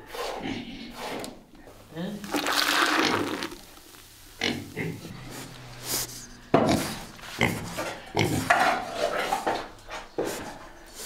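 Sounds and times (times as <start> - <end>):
farm animal calls and breaths: 4.8 - 11.0.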